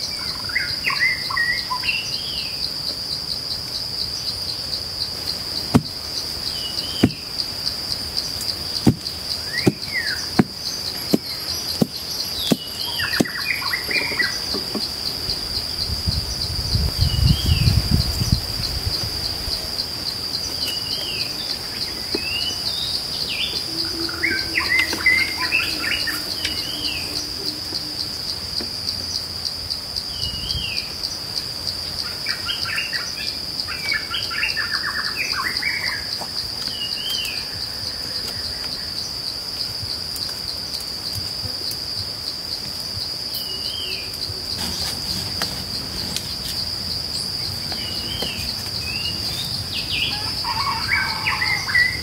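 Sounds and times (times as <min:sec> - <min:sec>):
insect trill: 0:00.0 - 0:52.0
bird chatter: 0:06.2 - 0:29.3
bird call notes: 0:20.5 - 0:28.4.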